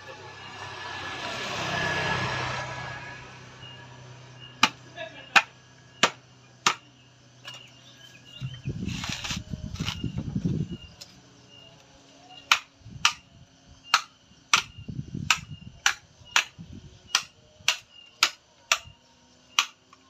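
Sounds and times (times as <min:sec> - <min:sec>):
vehicle passing: 0:00.0 - 0:06.0
coconut scraping on ground: 0:08.4 - 0:10.6.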